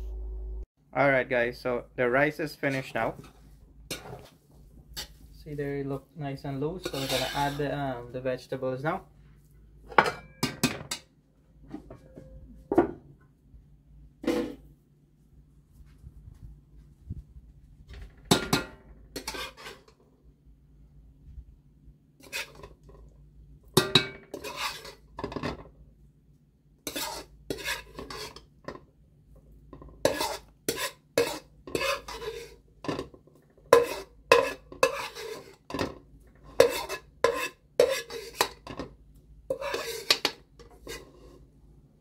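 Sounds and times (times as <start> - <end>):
metal spoon scraping a wok: 2.7 - 4.3, 4.9 - 5.3, 6.8 - 7.8, 19.2 - 20.0, 22.2 - 22.9, 24.2 - 25.4, 26.8 - 28.8, 29.9 - 38.8, 39.5 - 41.4.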